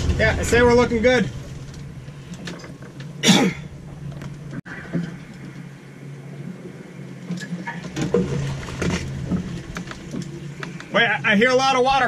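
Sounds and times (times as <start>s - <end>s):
low engine-like hum: 0.0s - 12.0s.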